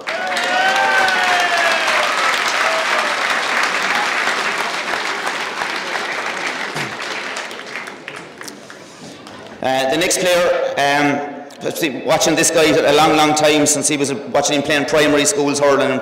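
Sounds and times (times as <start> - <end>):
crowd applauding: 0.0 - 9.6.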